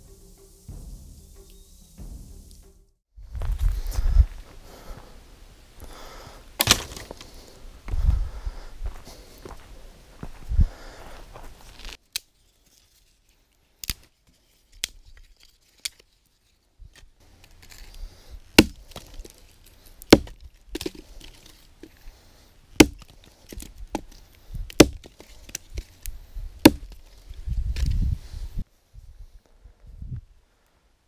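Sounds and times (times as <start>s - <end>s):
axe chopping into log: 6.6s - 7.2s, 18.6s - 19.1s, 20.1s - 21.0s, 22.8s - 24.1s, 24.7s - 25.2s, 26.6s - 27.0s.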